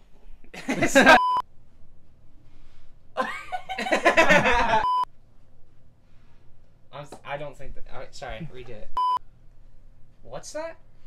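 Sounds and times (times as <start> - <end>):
young men laughing: 0.6 - 1.2, 3.2 - 5.0.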